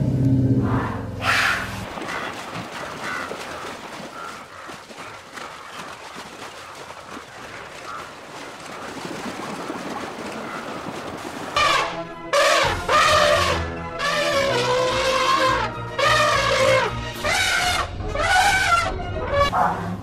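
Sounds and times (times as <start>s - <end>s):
animals splashing through river: 1.2s - 17.4s.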